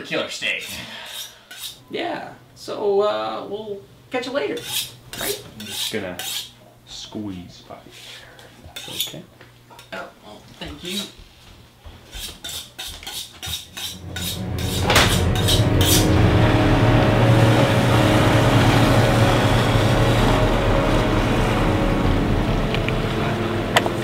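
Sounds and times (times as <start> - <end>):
outboard motor running: 15.0 - 24.0.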